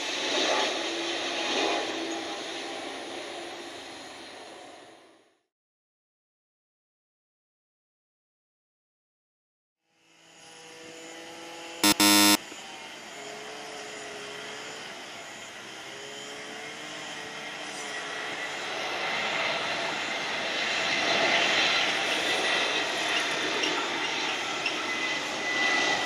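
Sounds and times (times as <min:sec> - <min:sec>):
airliner jet engine noise: 0:00.0 - 0:04.9, 0:14.3 - 0:26.0.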